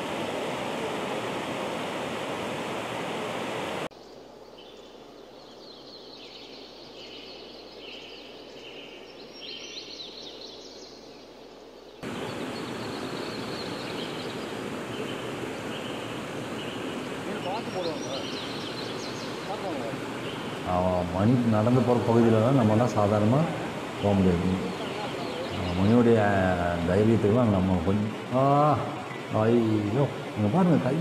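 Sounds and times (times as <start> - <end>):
river water rushing over rocks: 0.0 - 3.9, 12.0 - 31.0
high chirping calls: 12.0 - 31.0.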